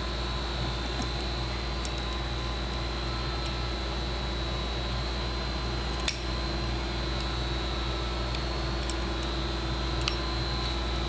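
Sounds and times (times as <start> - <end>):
steady background hum: 0.0 - 11.0
small metal clicks: 8.3 - 9.3.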